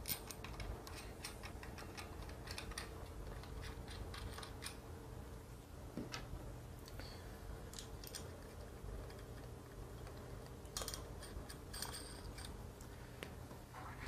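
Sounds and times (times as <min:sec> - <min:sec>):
low steady hum: 0:00.0 - 0:14.0
small metal hardware clinking: 0:10.7 - 0:12.6.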